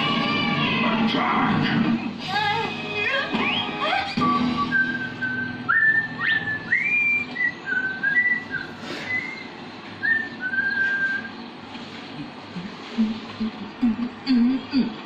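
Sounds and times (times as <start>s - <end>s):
person whistling a tune: 3.4s - 11.3s.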